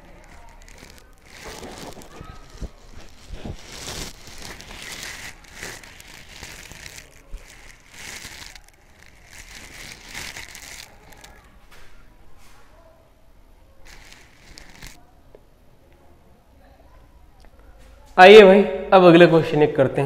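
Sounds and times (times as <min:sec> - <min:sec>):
rustling and crinkling: 0:00.0 - 0:12.8, 0:13.7 - 0:15.0.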